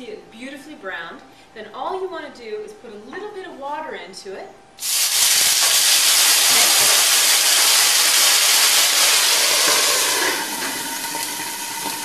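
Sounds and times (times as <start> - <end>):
water hissing in hot pan: 4.8 - 12.0.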